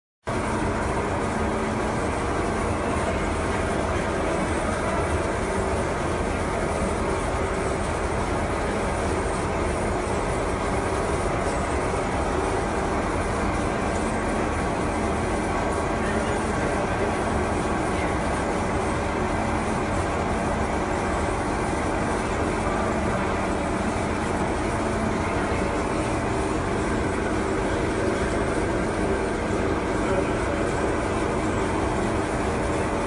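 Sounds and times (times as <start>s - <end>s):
machinery rumble: 0.3s - 33.0s.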